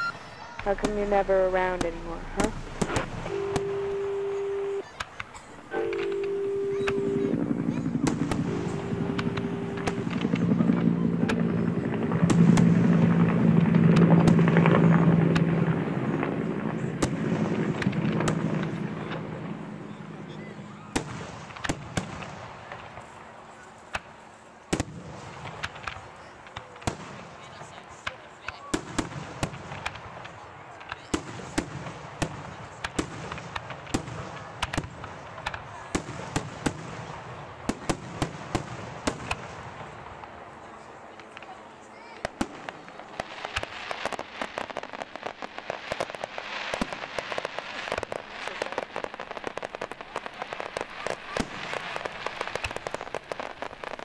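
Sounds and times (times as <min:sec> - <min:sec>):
fireworks crackling: 0:00.0 - 0:54.0
firework shells bursting: 0:00.6 - 0:19.3, 0:42.2 - 0:54.0
low hum: 0:05.7 - 0:15.7
low rumble: 0:07.4 - 0:16.6.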